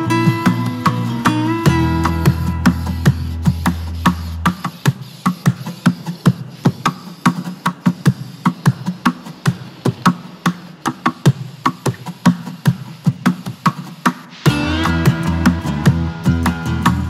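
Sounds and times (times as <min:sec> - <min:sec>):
quick percussion beat: 0:00.0 - 0:17.0
low bass line: 0:00.9 - 0:04.5, 0:14.5 - 0:17.0.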